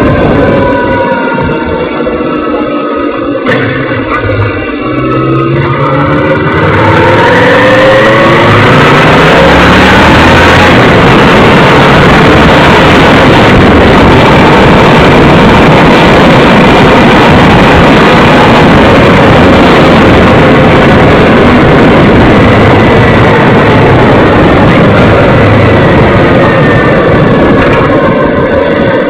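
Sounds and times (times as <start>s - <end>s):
heavy wind rush: 0.0s - 29.0s
motorcycle engine running at speed: 0.0s - 29.0s.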